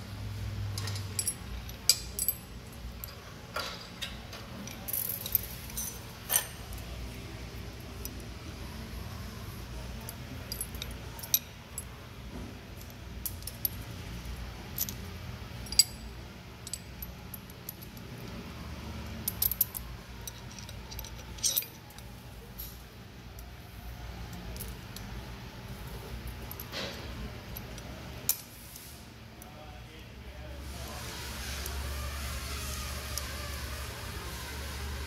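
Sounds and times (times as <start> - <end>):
steady low hum: 0.0 - 35.0
metal tools clinking: 0.6 - 7.0, 10.0 - 12.0, 14.6 - 18.1, 19.1 - 22.8.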